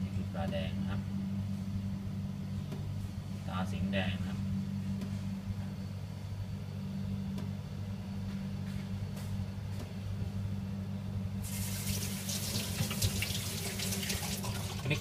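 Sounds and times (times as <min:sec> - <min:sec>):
tap water running: 0:11.4 - 0:15.0.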